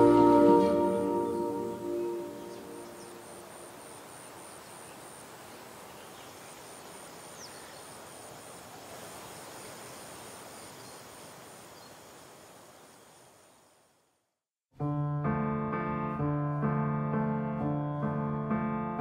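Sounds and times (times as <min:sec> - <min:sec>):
insect chirp pulsing: 0:00.7 - 0:14.2.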